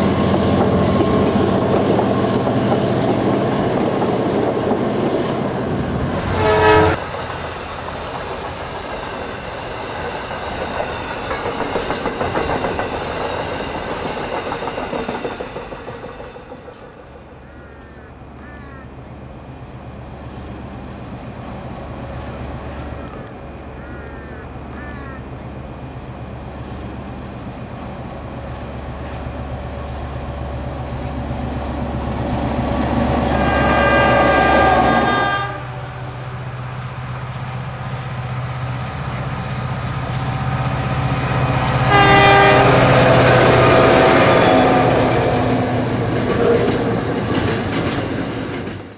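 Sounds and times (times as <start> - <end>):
diesel locomotive engine: 0.0 - 48.9
train horn: 6.1 - 7.2, 33.2 - 36.3, 41.6 - 46.9.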